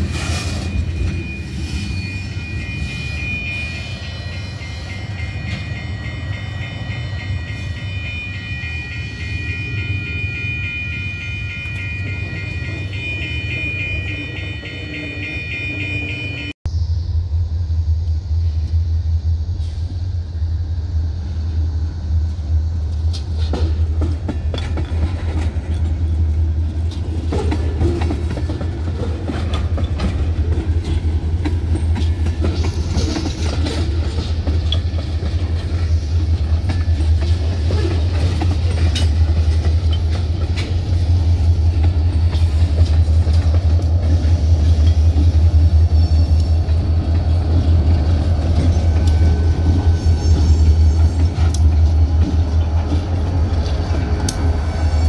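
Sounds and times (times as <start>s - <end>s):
diesel locomotives passing: 0.0s - 55.0s
train low rumble: 0.0s - 55.0s
train wheels clicking over rail joints: 22.2s - 55.0s.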